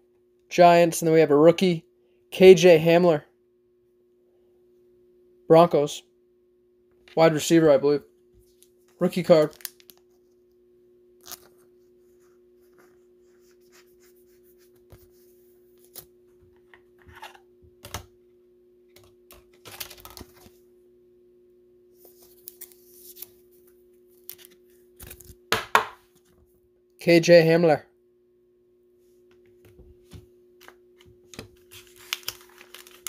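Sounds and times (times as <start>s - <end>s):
plastic rustling: 31.5s - 33.0s.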